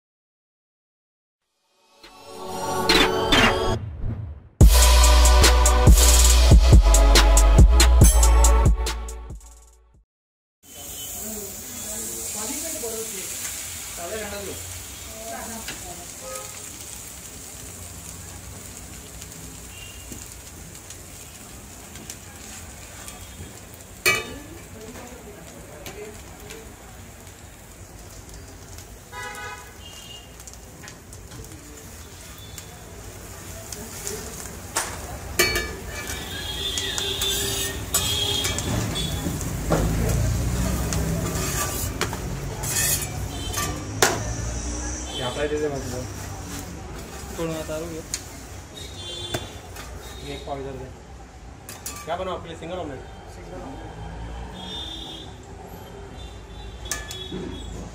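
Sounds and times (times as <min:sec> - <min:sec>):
low rumble: 0:03.7 - 0:04.8
egg sizzling in hot oil: 0:10.6 - 0:52.6
spatula scraping iron griddle: 0:34.8 - 0:44.7.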